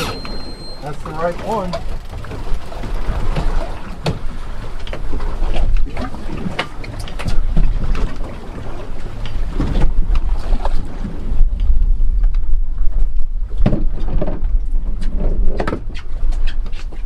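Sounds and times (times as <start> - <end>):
water washing: 0.0 - 11.4
wind rumbling on microphone: 0.0 - 17.0.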